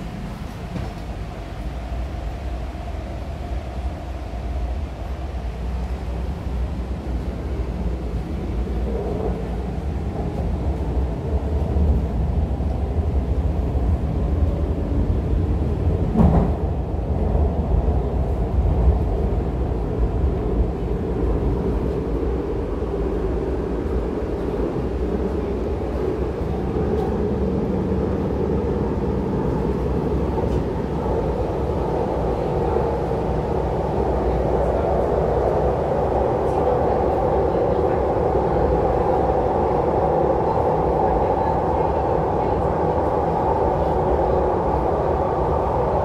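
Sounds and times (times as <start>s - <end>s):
metro train wheels rumbling on rail: 0.0s - 46.0s.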